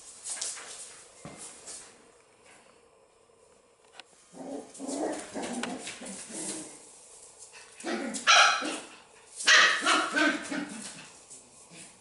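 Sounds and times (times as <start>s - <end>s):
puppy barking: 7.9s - 10.8s.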